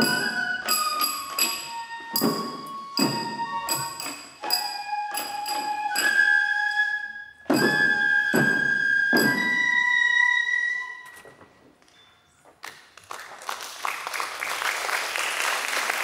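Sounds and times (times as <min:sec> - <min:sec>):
drum strikes: 0:00.0 - 0:06.2, 0:07.4 - 0:09.8
bamboo flute high notes: 0:00.0 - 0:12.3
applause: 0:12.6 - 0:16.0.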